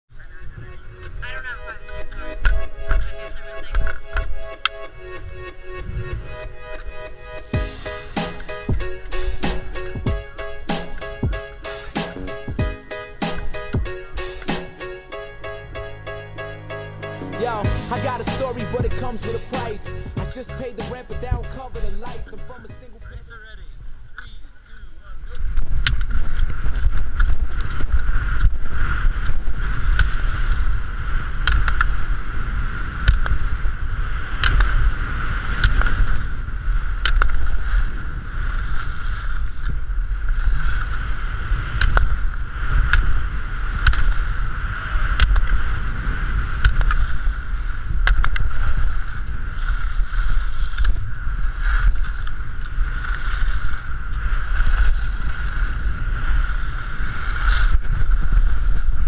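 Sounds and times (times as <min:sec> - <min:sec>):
wind rushing over microphone: 0:25.0 - 0:59.0
skis scraping on hard snow: 0:37.3 - 0:59.0.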